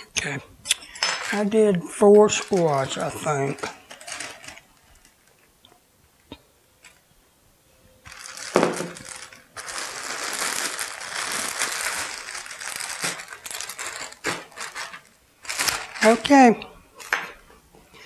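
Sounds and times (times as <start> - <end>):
plastic bag crinkling: 0.9 - 5.5, 8.0 - 17.3.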